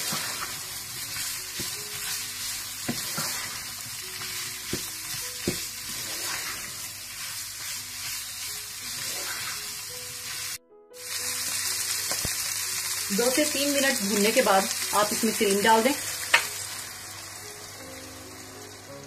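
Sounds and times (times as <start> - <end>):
wooden spatula stirring: 0.0 - 9.8
food sizzling in a frying pan: 0.0 - 19.0
spatula knocking on pan: 4.6 - 5.8.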